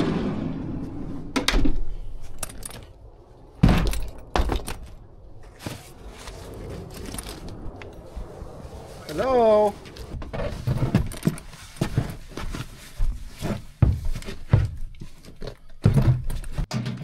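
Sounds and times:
knocks and clunks of handling: 10.2 - 17.0.

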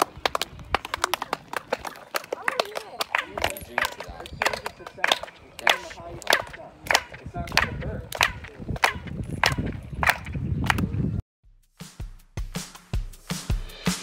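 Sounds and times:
hand claps with chirp echo: 0.0 - 10.9.

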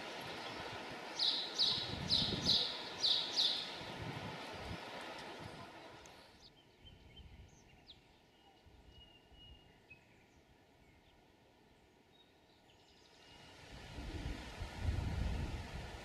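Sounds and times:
birdsong chirps and whistles: 1.2 - 4.8, 6.3 - 11.3.

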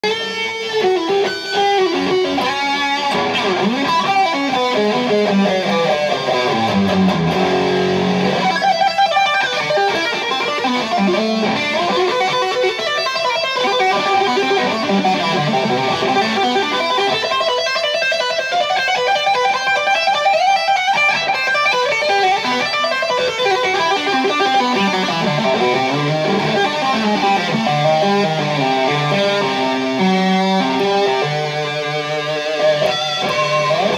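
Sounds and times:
electric guitar tapping runs: 0.1 - 33.9.

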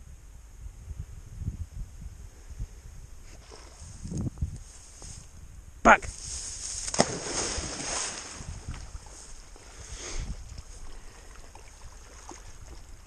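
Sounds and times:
dog splashing into river: 6.8 - 9.4
churning water: 10.3 - 13.0.

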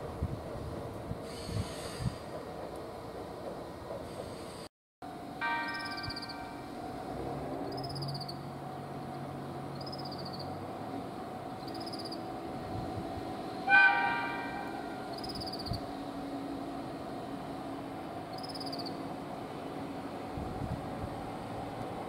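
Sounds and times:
train horn blast: 13.6 - 15.1.

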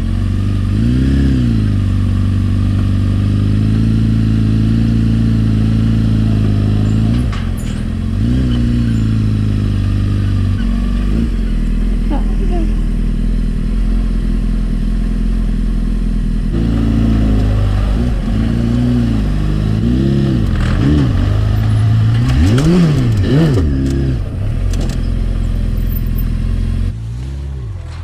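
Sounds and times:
motorcycle engine revving: 0.0 - 28.0
clicks and rattles: 20.4 - 26.3.

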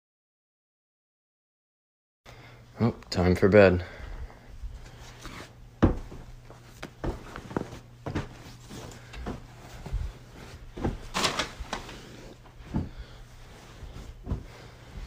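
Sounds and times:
fabric rustling: 4.6 - 15.0
pillows thudding: 5.8 - 15.0.

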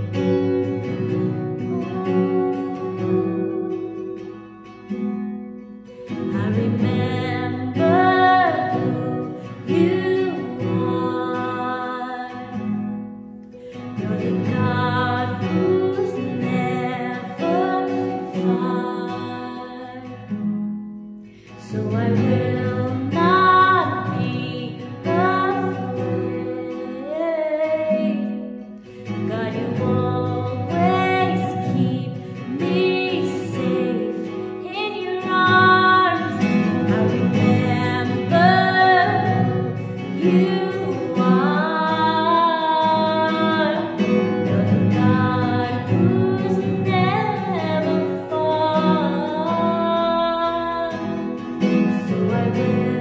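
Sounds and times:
woman singing: 0.0 - 5.0, 5.9 - 20.6, 21.3 - 53.0
strummed acoustic guitar: 0.0 - 53.0.

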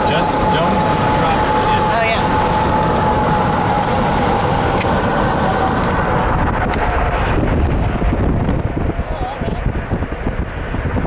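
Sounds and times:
car road noise: 0.0 - 11.0
wind buffeting microphone: 0.0 - 11.0.

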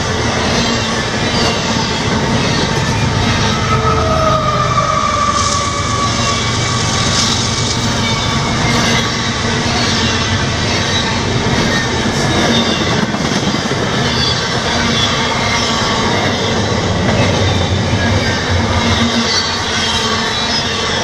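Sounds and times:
steel wheels on rail: 0.0 - 21.0
whine sliding down in pitch: 2.0 - 10.5.

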